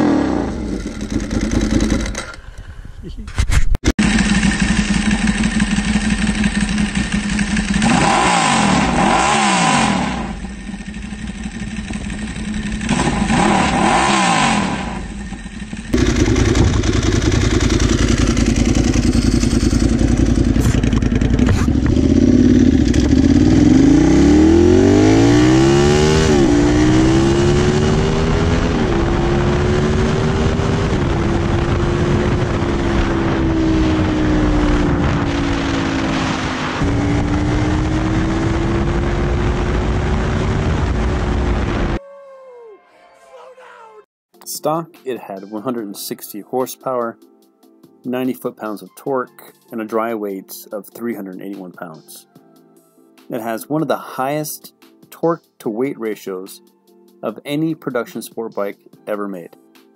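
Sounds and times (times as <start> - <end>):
motorcycle engine revving: 0.0 - 2.4, 4.0 - 42.0
wind noise: 26.5 - 42.0.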